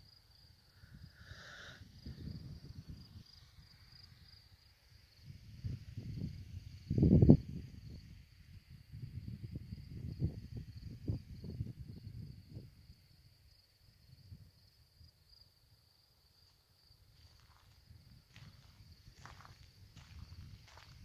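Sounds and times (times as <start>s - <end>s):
insects trilling: 0.0s - 21.0s
wind gusts on microphone: 0.8s - 4.0s, 5.0s - 13.1s, 17.3s - 21.0s.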